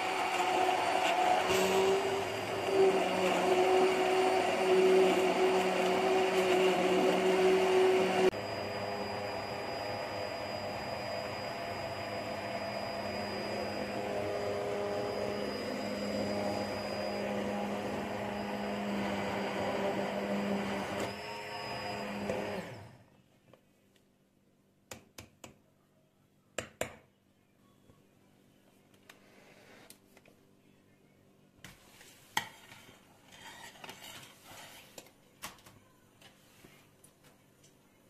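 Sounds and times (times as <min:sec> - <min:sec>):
hand blender running in pot: 0:00.0 - 0:23.0.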